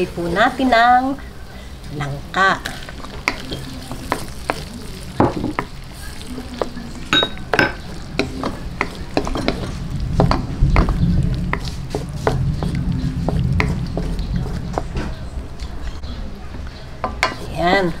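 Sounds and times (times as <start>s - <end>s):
light sizzle: 0.0s - 18.0s
low rumble: 7.9s - 16.5s
wooden spatula scraping a pan: 8.2s - 15.3s.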